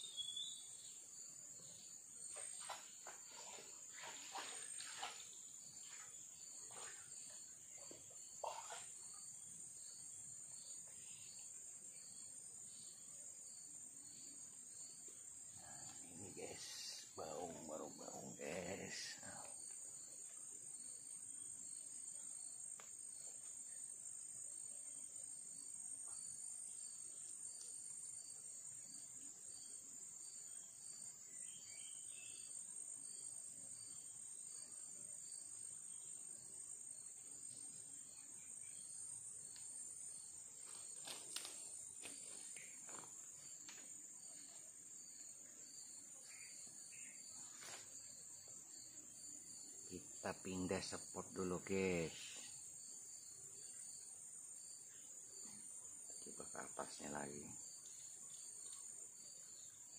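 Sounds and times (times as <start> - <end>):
insect chirping pulse: 0.0 - 59.9
high-pitched insect drone: 15.6 - 20.1.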